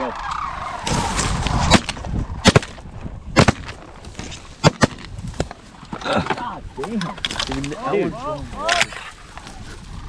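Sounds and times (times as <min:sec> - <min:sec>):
sharp cracks of stalks: 0:00.4 - 0:05.6
dry reeds rustling against microphone: 0:03.7 - 0:10.0.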